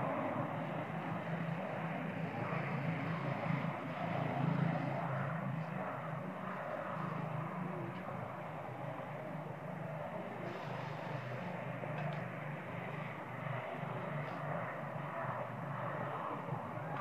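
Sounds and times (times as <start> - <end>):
low engine drone: 0.0 - 17.0
hiss: 10.4 - 11.5.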